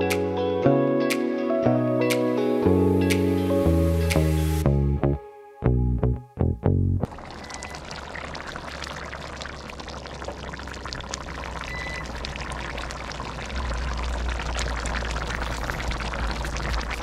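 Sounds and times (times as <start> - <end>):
curry bubbling and popping: 7.0 - 17.0.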